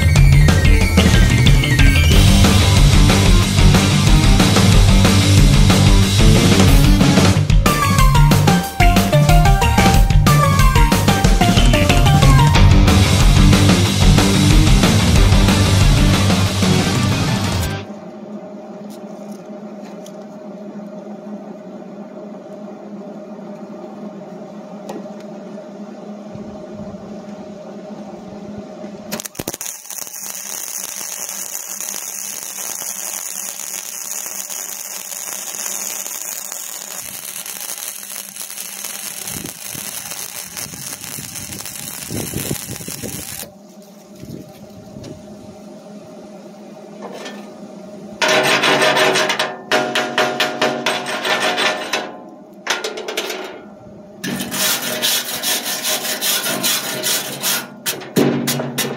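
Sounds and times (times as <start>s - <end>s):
loud even hiss: 0.0s - 8.0s, 29.1s - 46.6s
machine hum: 0.0s - 58.9s.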